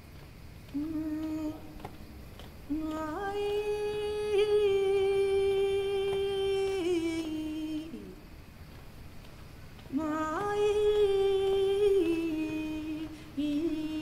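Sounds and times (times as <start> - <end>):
person humming: 0.7 - 2.1, 2.7 - 8.2, 9.9 - 14.0.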